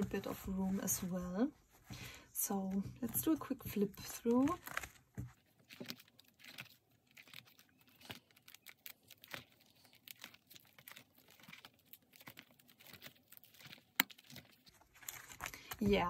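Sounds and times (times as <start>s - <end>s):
plastic pages rustling: 0.0s - 16.0s
light clicks of pages turning: 7.3s - 16.0s.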